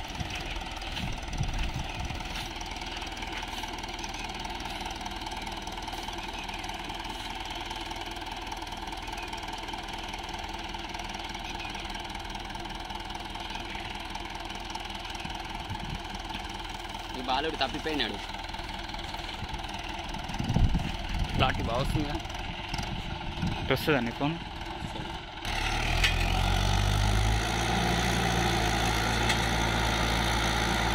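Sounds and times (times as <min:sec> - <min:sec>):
tractor diesel engine running: 0:00.0 - 0:30.9.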